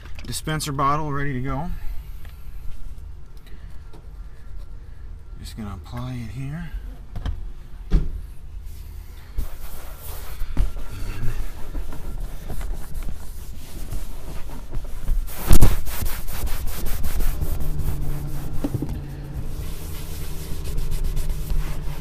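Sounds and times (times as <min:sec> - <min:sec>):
low steady hum: 0:00.0 - 0:22.0
pad rubbing leather: 0:09.3 - 0:22.0.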